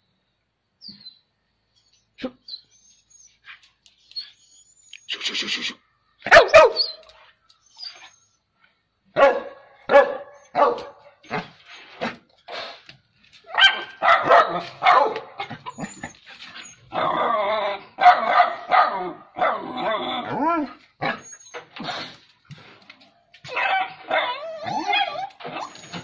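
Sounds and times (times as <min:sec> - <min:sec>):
dogs barking and yelping: 0:06.2 - 0:08.2, 0:09.2 - 0:12.2, 0:13.4 - 0:22.3, 0:23.0 - 0:26.0.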